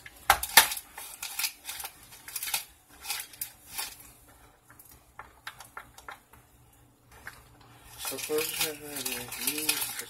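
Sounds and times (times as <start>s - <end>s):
paper sheet rustling: 7.9s - 10.0s.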